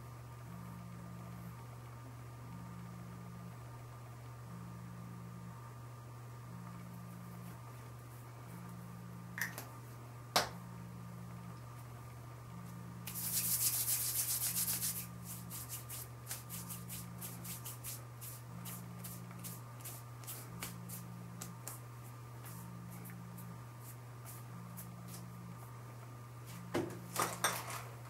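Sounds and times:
hands patting cheeks: 0:13.1 - 0:17.9, 0:19.4 - 0:22.6
palms rubbing together: 0:13.1 - 0:25.3.

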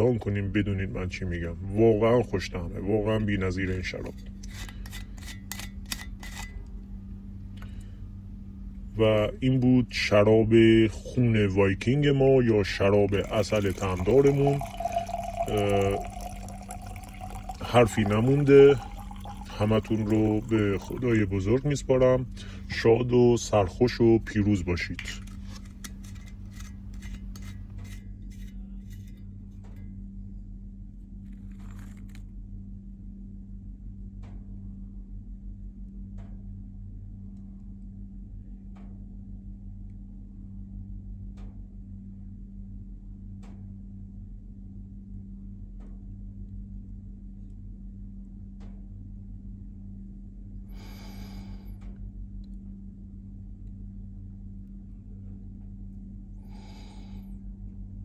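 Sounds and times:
steady low drone: 0:00.0 - 0:31.1.

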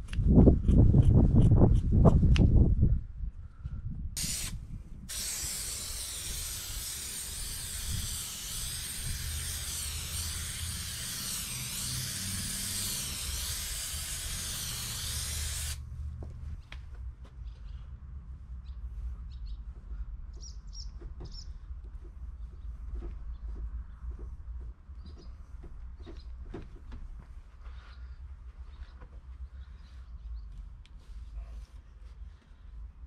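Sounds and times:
aerosol can spraying: 0:04.2 - 0:15.8.

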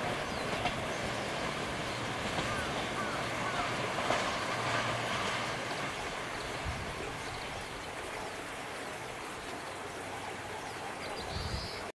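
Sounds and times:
train wheels on rails: 0:00.0 - 0:07.1.

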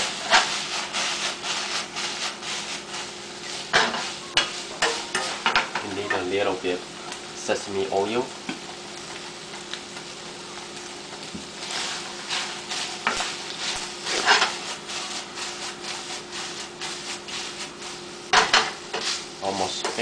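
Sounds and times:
wooden spatula scraping pan: 0:00.0 - 0:06.4, 0:11.6 - 0:20.0
faint sizzle: 0:00.0 - 0:20.0.

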